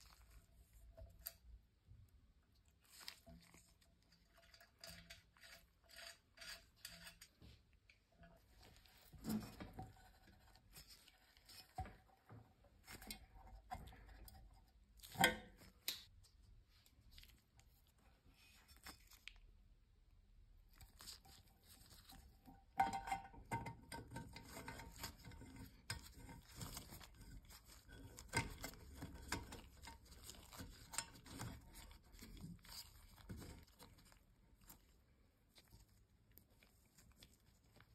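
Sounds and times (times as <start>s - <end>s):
gloved hands rustling on wire: 20.8s - 37.9s.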